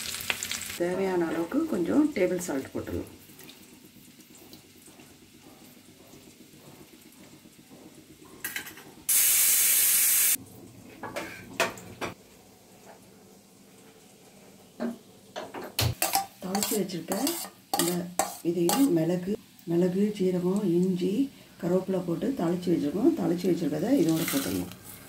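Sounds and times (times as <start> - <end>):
pressure cooker steam hiss: 9.1 - 10.4.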